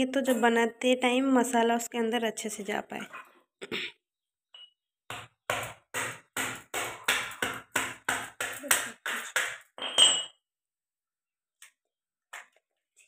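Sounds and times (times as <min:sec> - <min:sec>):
pestle knocking on crab shell: 0:05.1 - 0:09.7.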